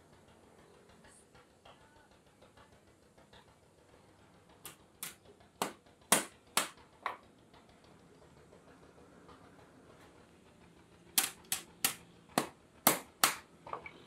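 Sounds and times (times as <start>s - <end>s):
hammer tapping on metal: 4.6s - 7.2s, 11.2s - 13.5s.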